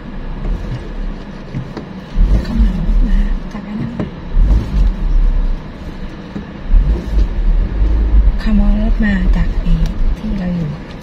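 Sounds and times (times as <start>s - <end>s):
car driving on dirt track: 0.0s - 11.0s.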